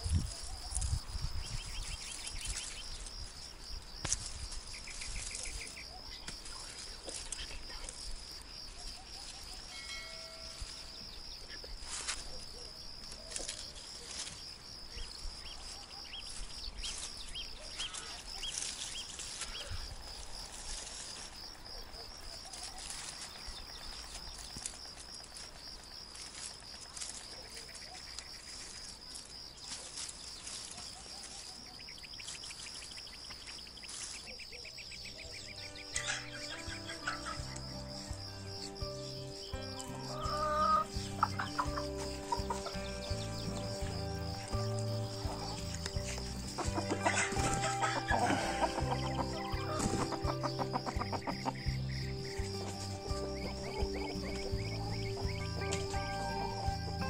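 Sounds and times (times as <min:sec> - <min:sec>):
plants rustling and clicking: 0:00.0 - 0:09.7, 0:11.5 - 0:34.5, 0:40.9 - 0:57.0
pulsing insect trill: 0:00.0 - 0:57.0
faint bird chirps: 0:00.2 - 0:08.0.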